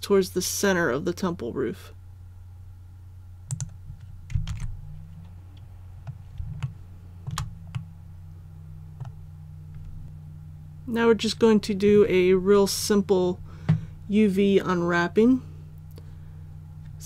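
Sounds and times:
steady low hum: 0:00.0 - 0:17.0
keyboard and mouse clicks: 0:03.5 - 0:04.7, 0:06.0 - 0:07.9.

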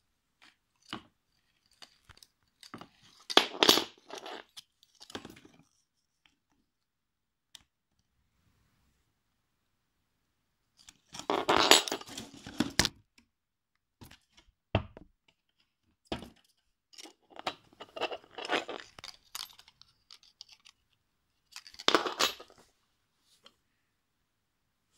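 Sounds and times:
object knocking on wooden table: 0:14.8 - 0:15.1.

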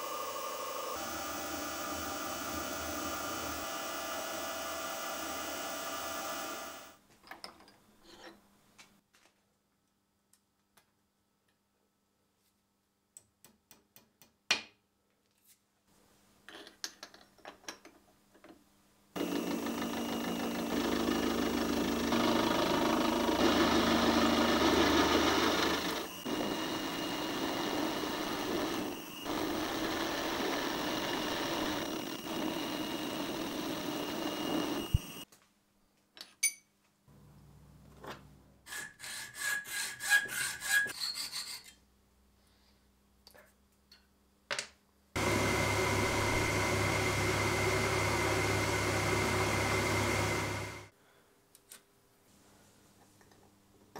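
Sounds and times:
milling machine cutting metal: 0:19.2 - 0:35.2, 0:45.2 - 0:50.9.

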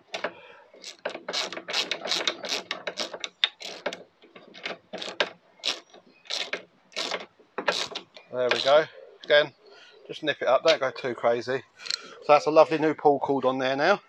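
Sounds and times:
hand ratchet clicking: 0:00.1 - 0:08.8.

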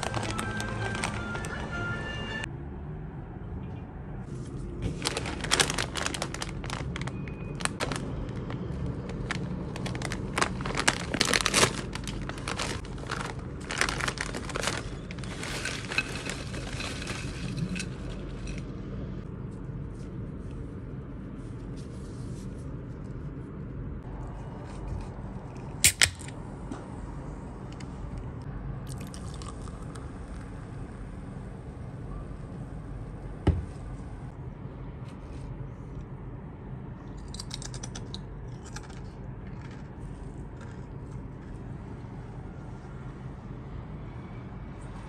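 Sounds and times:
plastic chip bag crinkling: 0:00.0 - 0:02.0, 0:04.9 - 0:18.6, 0:28.9 - 0:30.0, 0:37.4 - 0:41.4.

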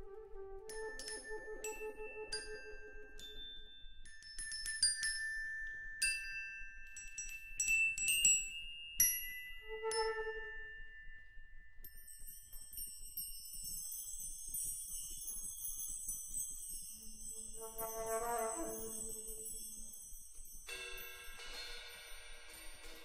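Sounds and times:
low flute note: 0:00.0 - 0:03.2, 0:09.7 - 0:10.6
glockenspiel notes: 0:00.7 - 0:23.0
jingling small bells: 0:00.7 - 0:23.0.

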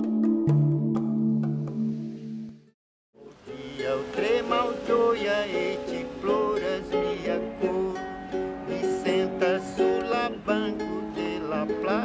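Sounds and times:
ukulele playing: 0:00.0 - 0:02.4, 0:03.2 - 0:12.0
person singing: 0:03.2 - 0:12.0.

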